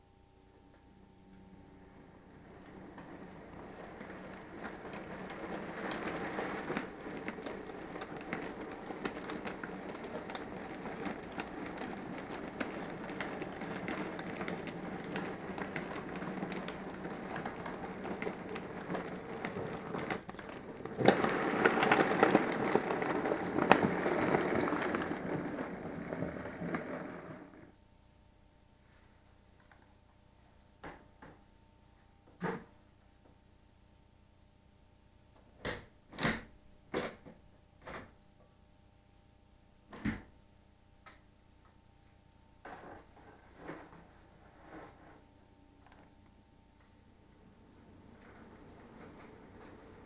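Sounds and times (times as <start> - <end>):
model train wheels rattling: 2.4 - 27.7.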